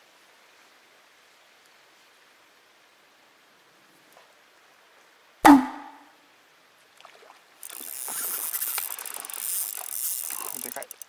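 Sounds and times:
sharp knock: 5.5s - 6.0s
fish splashing at water surface: 7.0s - 11.0s.

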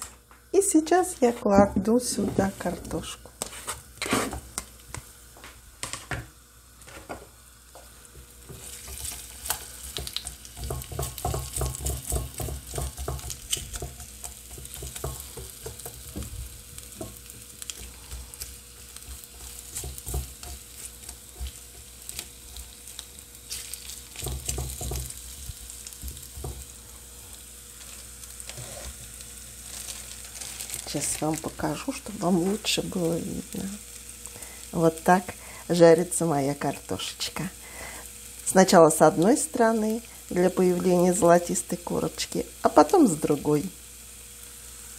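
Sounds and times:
potato slices sizzling in oil: 0.0s - 44.9s
spatula scraping and knocking pan: 1.5s - 5.1s, 6.8s - 26.7s.

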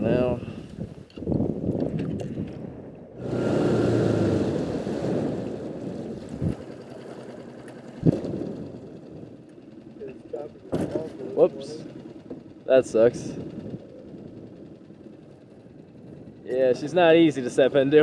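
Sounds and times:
wind on microphone: 0.0s - 7.0s, 7.9s - 9.4s, 13.1s - 16.5s
outboard motor running: 3.2s - 18.0s.

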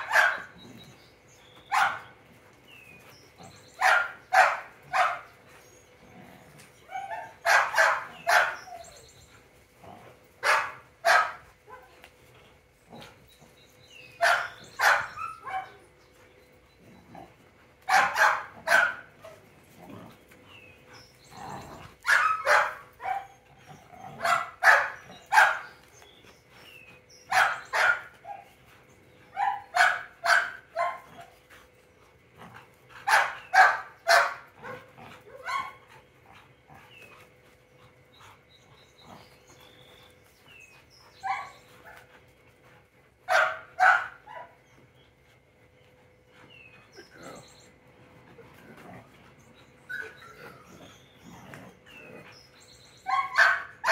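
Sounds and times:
large dog barking playfully: 7.0s - 8.8s, 17.8s - 20.1s, 21.5s - 25.7s, 32.4s - 36.0s, 43.3s - 44.6s, 53.1s - 53.9s.

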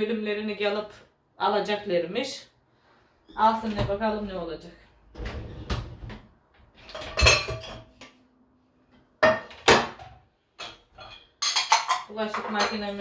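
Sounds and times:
dishes clinking and clattering: 6.8s - 8.0s, 9.2s - 13.0s.

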